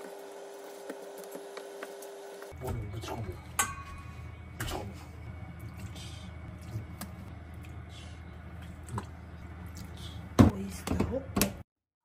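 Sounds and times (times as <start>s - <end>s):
steady low hum: 2.5s - 11.6s.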